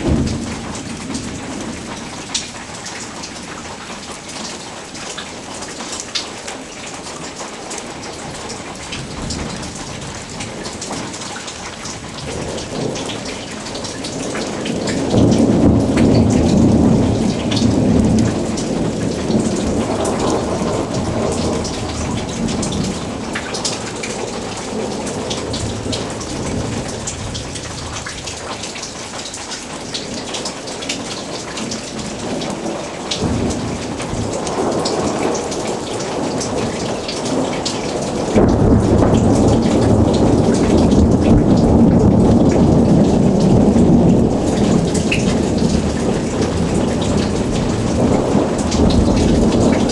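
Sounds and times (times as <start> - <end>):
thunder rumbling: 0.0 - 2.3, 11.9 - 28.6, 31.9 - 49.9
heavy rain: 0.0 - 49.9.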